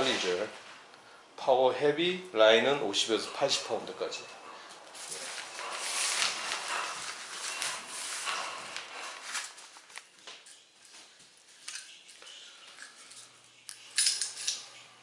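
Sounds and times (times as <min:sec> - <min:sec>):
metallic clinks: 0:12.8 - 0:14.8.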